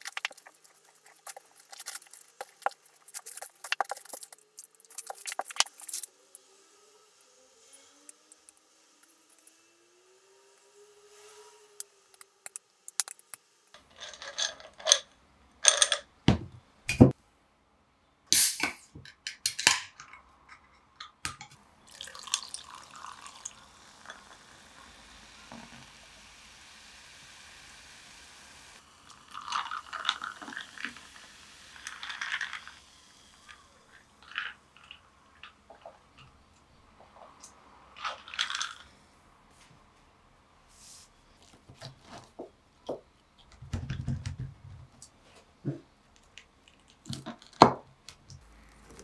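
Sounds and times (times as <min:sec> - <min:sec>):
can popping open: 0:18.3 - 0:19.9
cola pouring over ice: 0:21.8 - 0:25.8, 0:28.8 - 0:36.0, 0:38.0 - 0:38.9
glass and ice clinking: 0:21.9 - 0:24.2
fizzing hiss of soda: 0:21.9 - 0:35.0.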